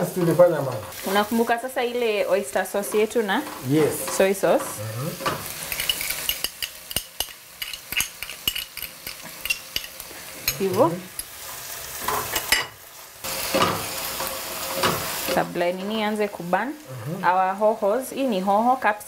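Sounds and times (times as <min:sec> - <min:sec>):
onions sizzling in hot oil: 0:00.0 - 0:19.0
spatula scraping a pan: 0:09.4 - 0:12.7.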